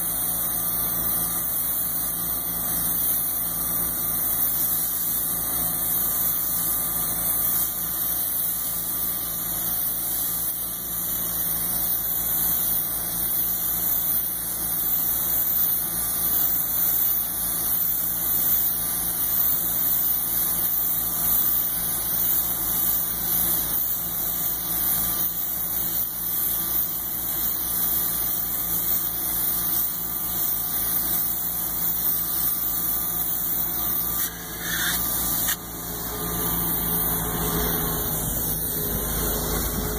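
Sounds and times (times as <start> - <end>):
spray gun hissing: 0.0 - 39.9
engine and pump droning: 32.5 - 39.9.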